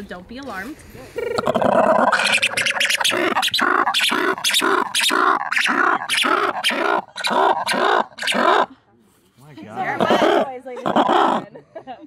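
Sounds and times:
lemur loud rhythmic cries: 1.2s - 8.7s, 9.9s - 11.5s.

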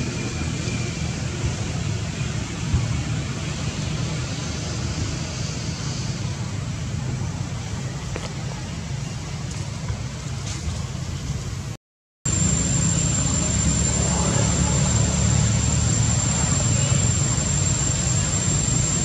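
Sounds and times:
low rumble: 12.3s - 19.0s.

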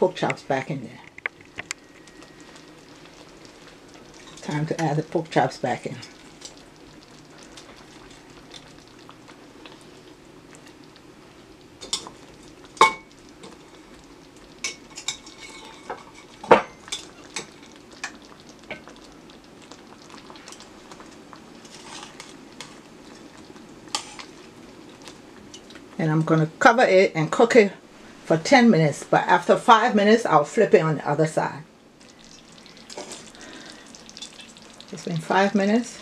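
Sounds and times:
sauce simmering in a pan: 1.4s - 26.0s, 31.6s - 36.0s.

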